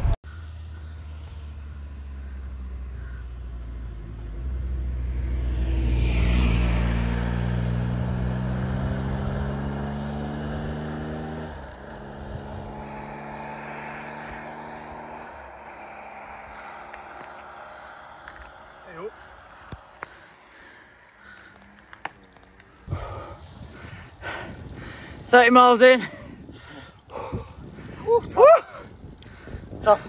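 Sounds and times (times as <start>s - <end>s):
vehicle engine drone: 0.0s - 30.0s
wind on microphone: 22.8s - 30.0s.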